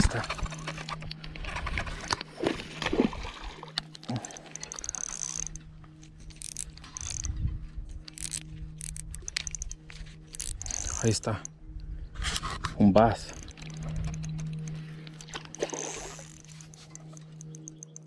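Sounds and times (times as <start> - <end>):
reel clicking: 3.7 - 11.6, 12.4 - 18.0
fishing reel whirring: 3.8 - 11.6, 13.0 - 18.0.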